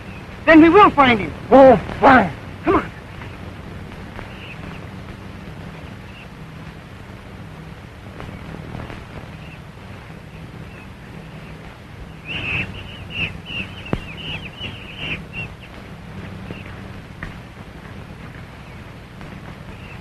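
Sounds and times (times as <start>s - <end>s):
film soundtrack hum and hiss: 0.0s - 20.0s
monkeys chattering: 10.7s - 15.7s.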